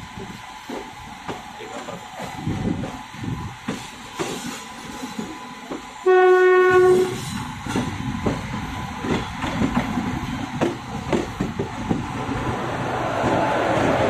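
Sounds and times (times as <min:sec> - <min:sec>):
locomotive wheels rumbling on rails: 0:00.0 - 0:14.0
locomotive horn blast: 0:06.0 - 0:07.2.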